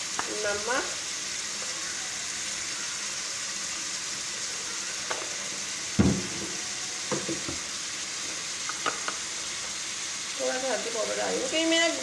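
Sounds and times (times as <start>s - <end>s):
food sizzling in oil: 0.0s - 12.0s
knocks against pan: 6.0s - 7.6s.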